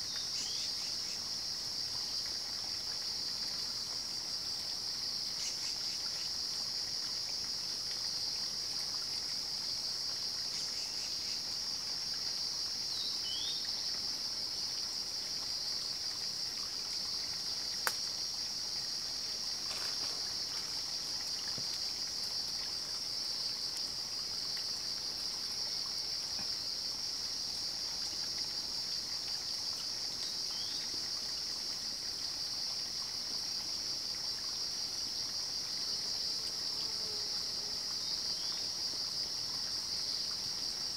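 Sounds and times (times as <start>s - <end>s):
background hiss: 0.0s - 40.9s
night insects chorus: 0.0s - 40.9s.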